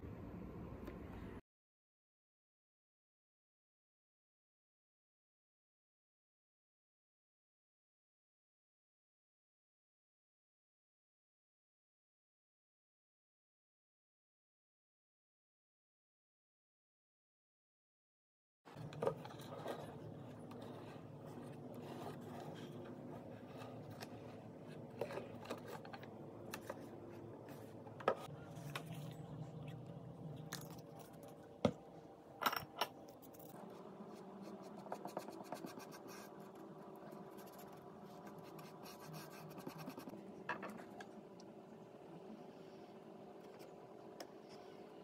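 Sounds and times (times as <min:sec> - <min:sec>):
paintbrush scratchy strokes: 0:19.1 - 0:29.3, 0:33.2 - 0:40.1.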